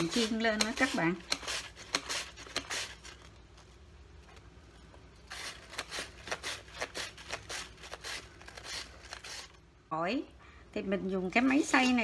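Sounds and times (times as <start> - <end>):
mandoline slicing onion: 0.0 - 3.4, 5.0 - 9.6.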